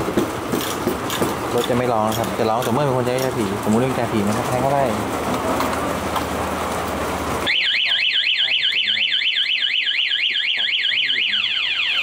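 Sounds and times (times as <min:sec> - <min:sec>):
motorcycle alarm siren sweeping: 0:07.4 - 0:12.0.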